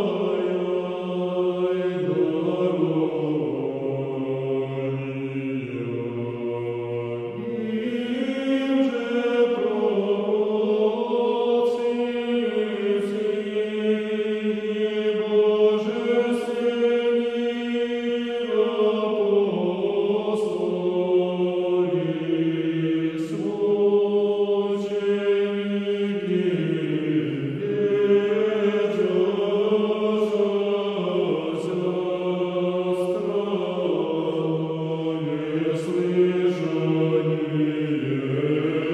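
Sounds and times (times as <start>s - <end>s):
choir chanting slowly: 0.0s - 38.9s.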